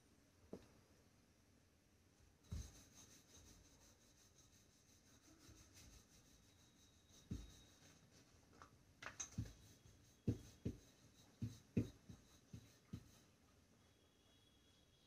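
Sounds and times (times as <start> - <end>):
rolling pin knocking on board: 9.3 - 12.2.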